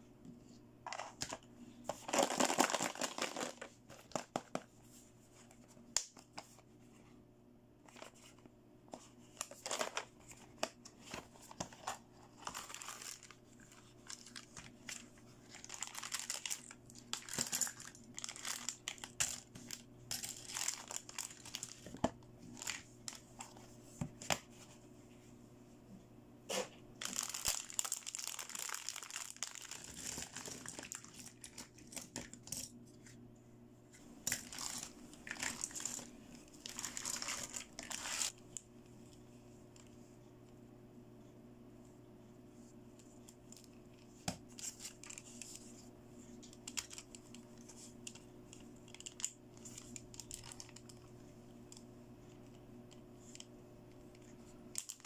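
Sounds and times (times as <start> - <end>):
plastic toys clattering: 1.9 - 4.6, 15.5 - 19.5
plastic bag crinkling: 2.0 - 4.4, 11.7 - 23.5, 27.0 - 32.4, 34.2 - 38.4, 48.9 - 51.1, 54.7 - 55.0.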